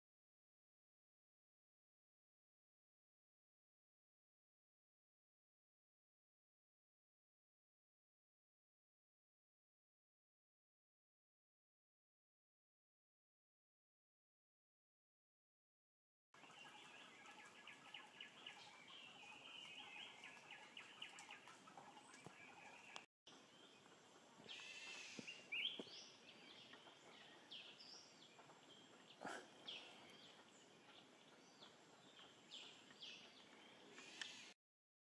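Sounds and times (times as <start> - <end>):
high bird chirping: 16.5 - 34.5.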